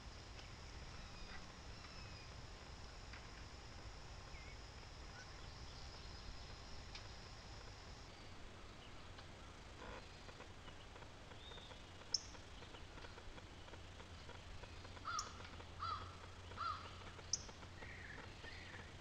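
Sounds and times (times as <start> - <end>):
faint low hum: 0.0 - 19.0
birds calling: 8.1 - 19.0.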